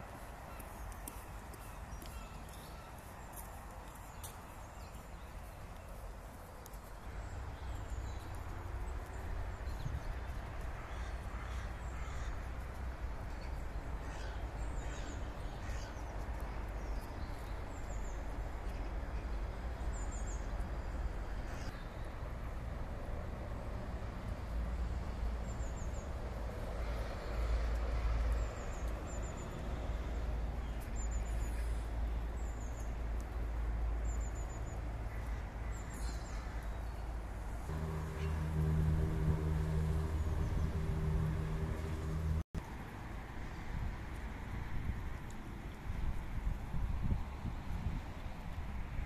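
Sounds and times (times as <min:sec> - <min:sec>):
birds chirping: 0:37.7 - 0:42.4
low rumble: 0:37.7 - 0:42.5.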